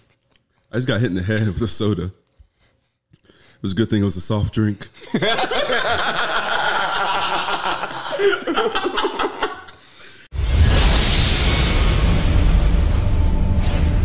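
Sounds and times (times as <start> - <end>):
young men laughing: 4.9 - 10.3.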